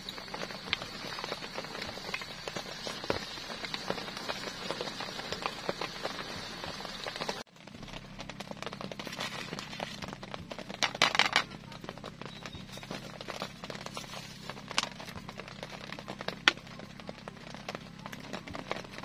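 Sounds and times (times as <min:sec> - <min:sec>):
crinkling rustle: 0:07.0 - 0:19.0.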